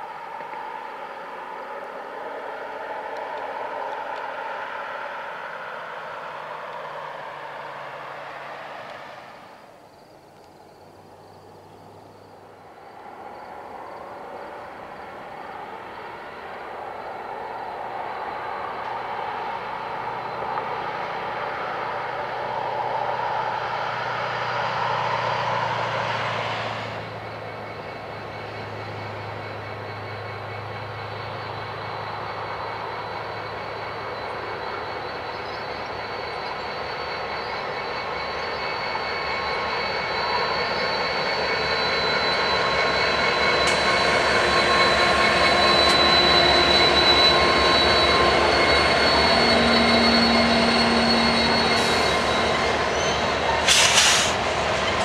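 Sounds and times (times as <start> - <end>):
locomotive engine drone with whine: 0.0 - 55.0
rushing noise: 12.2 - 55.0.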